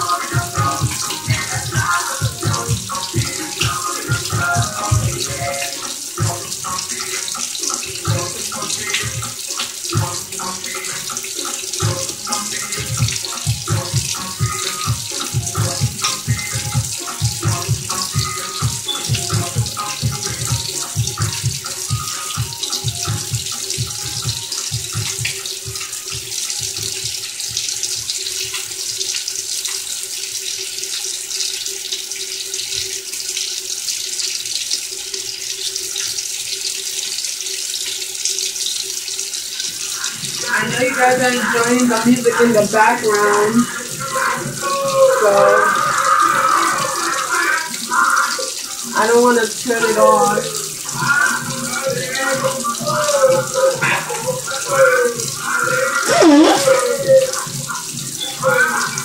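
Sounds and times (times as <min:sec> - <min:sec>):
background music with low beat: 0:00.0 - 0:28.2
fish sizzling in hot oil: 0:00.0 - 0:59.0.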